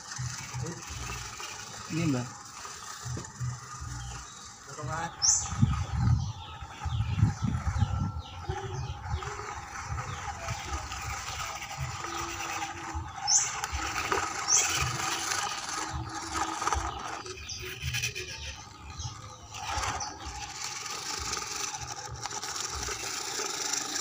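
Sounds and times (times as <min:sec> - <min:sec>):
small electric motor whirring: 0:00.0 - 0:24.0
tyres scraping over stones: 0:10.2 - 0:24.0.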